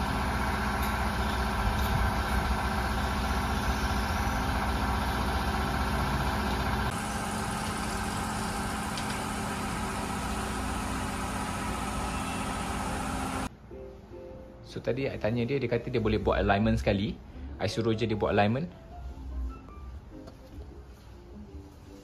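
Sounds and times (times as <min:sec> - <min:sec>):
car engine idling: 0:00.0 - 0:13.5.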